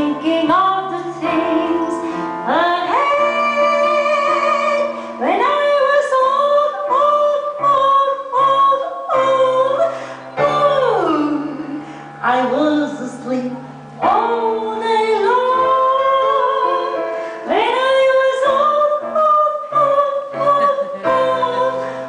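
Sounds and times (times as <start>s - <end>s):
instrumental backing: 0.0s - 22.0s
woman singing: 0.0s - 22.0s.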